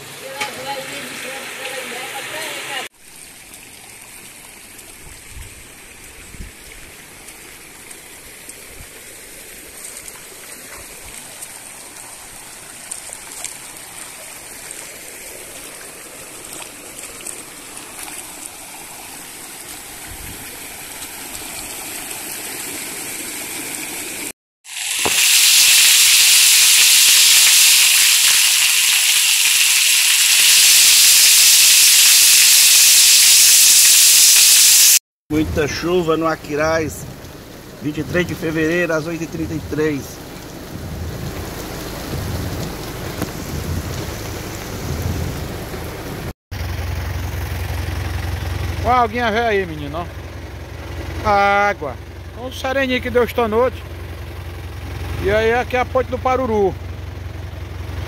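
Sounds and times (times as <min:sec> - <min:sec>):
heavy rain pouring on concrete: 0:00.0 - 0:35.0, 0:35.7 - 0:46.3
water running over gravel: 0:00.2 - 0:35.0, 0:35.6 - 0:46.3, 0:47.3 - 0:50.5.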